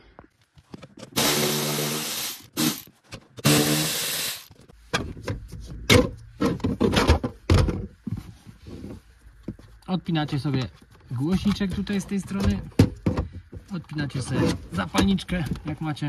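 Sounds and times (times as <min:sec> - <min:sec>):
electric socket driver running: 0:01.2 - 0:02.8, 0:03.4 - 0:04.5.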